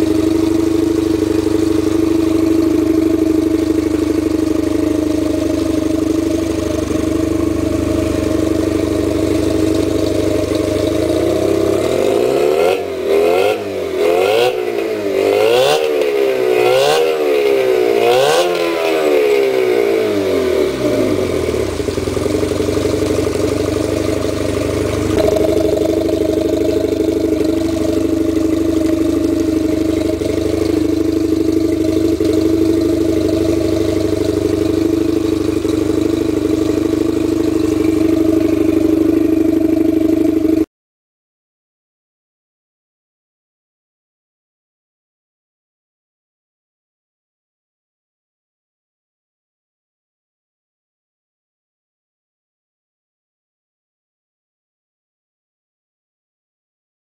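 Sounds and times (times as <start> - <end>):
outboard motor idling and revving: 0.0 - 40.7.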